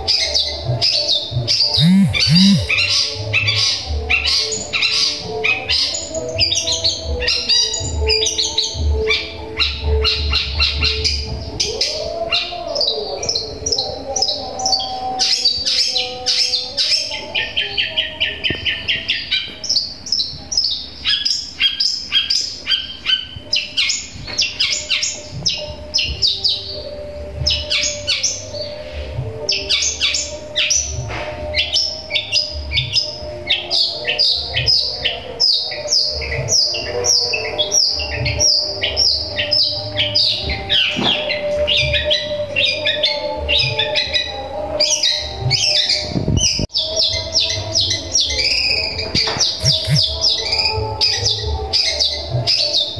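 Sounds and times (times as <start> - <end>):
bird singing fast high chirps: 1.7 - 2.8, 49.5 - 50.4.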